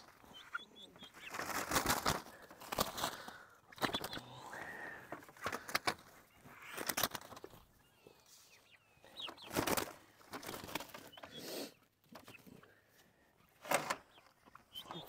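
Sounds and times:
turkeys chirping: 0.0 - 2.4, 3.0 - 12.7, 13.4 - 15.0
wing flapping: 1.1 - 4.2, 6.6 - 7.6, 9.4 - 11.1.

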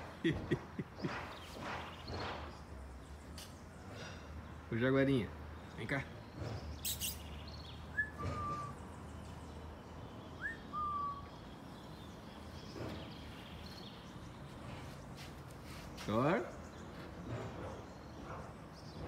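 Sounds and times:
whistled calls: 6.8 - 9.0, 10.3 - 11.7.

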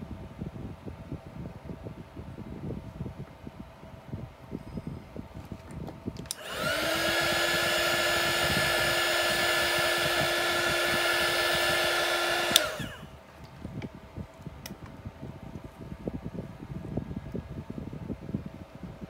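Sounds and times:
heat gun fan whining: 5.2 - 19.0
heat gun switch click: 6.2 - 13.0.

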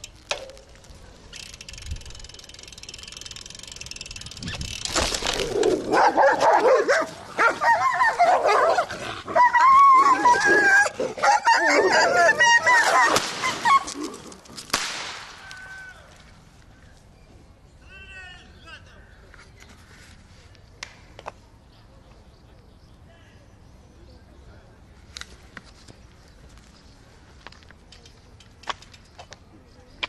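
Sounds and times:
dogs yelping and barking: 5.4 - 14.3.

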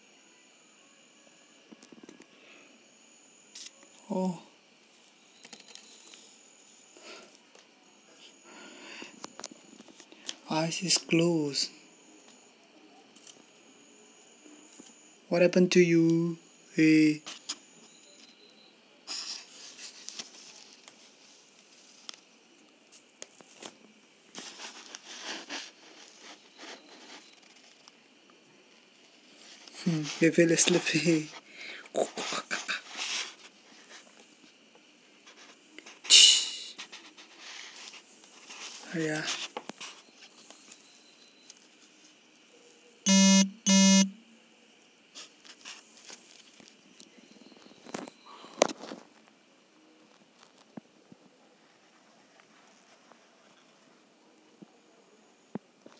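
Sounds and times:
buzzy electronic beeps: 43.1 - 44.2.

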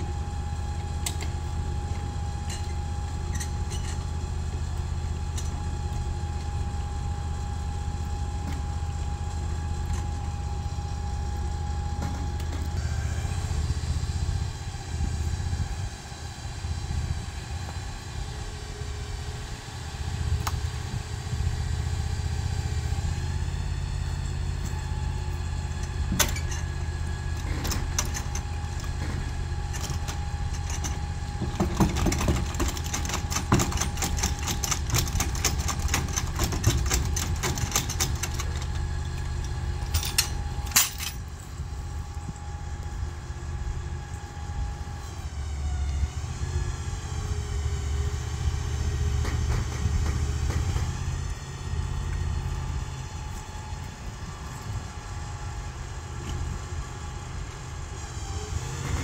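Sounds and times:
engine idling: 0.0 - 59.0
metal clicks and clanks: 25.8 - 41.3.

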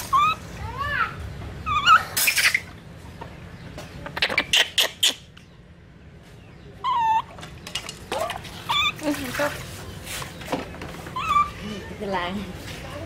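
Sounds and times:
baby monkey high-pitched call: 0.0 - 1.0, 1.6 - 2.7, 4.2 - 5.3, 6.8 - 7.4, 8.6 - 9.1, 11.2 - 11.6.

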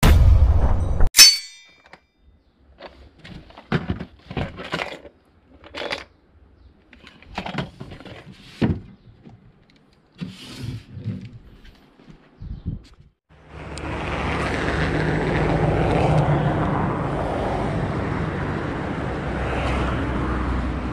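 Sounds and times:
plastic boxes clicking and rattling: 2.7 - 6.2, 6.9 - 9.9.

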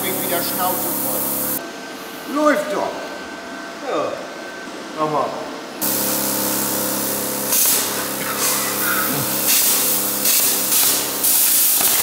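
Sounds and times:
plasma cutter hissing bursts: 0.0 - 1.6, 5.8 - 12.0
electrical hum: 0.0 - 12.0.

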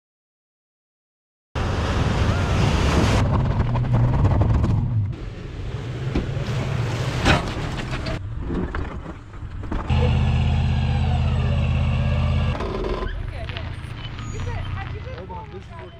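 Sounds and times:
truck engine rumble: 1.6 - 15.9.

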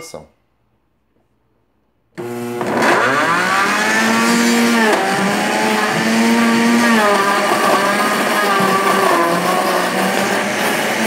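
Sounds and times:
blender motor running: 2.2 - 11.0.

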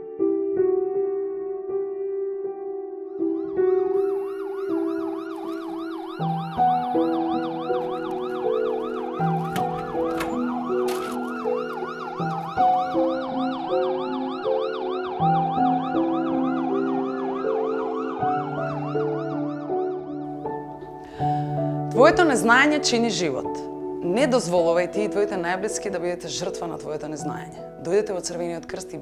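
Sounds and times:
ambulance siren yelping: 3.8 - 21.0.

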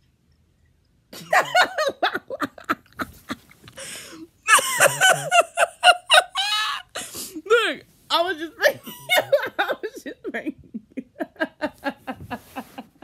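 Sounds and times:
person laughing loudly: 1.2 - 7.1, 8.7 - 13.0.

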